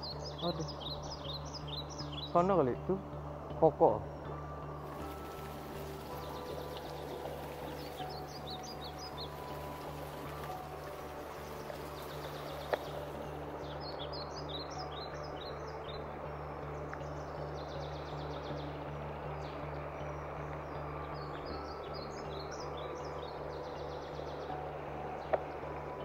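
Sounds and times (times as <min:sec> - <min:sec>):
birds chirping: 0:00.0 - 0:26.0
river rushing over stones: 0:04.8 - 0:13.6.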